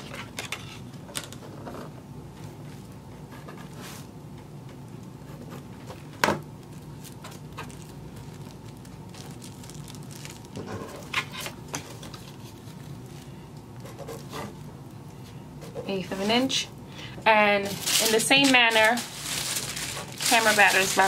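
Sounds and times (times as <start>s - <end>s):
steady low hum: 0.0s - 21.0s
tissue paper rustling: 6.7s - 13.3s, 17.6s - 21.0s.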